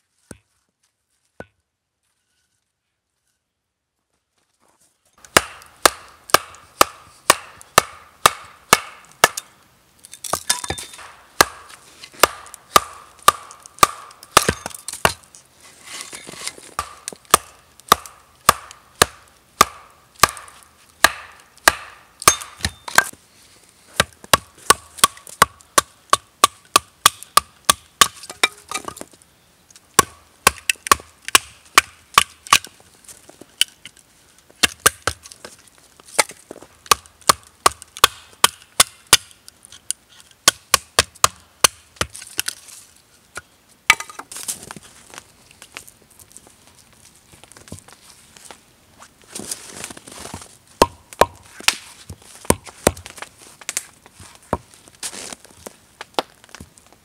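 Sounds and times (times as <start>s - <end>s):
axe chopping log: 5.2s - 9.5s, 10.3s - 15.3s, 16.4s - 23.2s, 24.0s - 29.0s, 30.0s - 32.7s, 34.6s - 35.3s, 36.2s - 39.3s, 40.4s - 42.5s, 50.8s - 51.9s, 52.5s - 53.2s.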